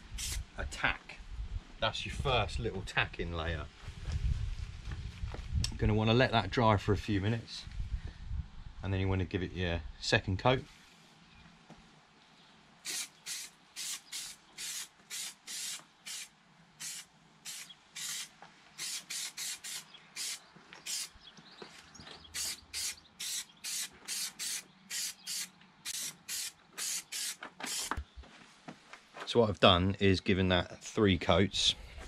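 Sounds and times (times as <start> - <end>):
aerosol spray can hissing bursts: 0.1 - 0.4, 12.8 - 21.1, 22.4 - 28.0.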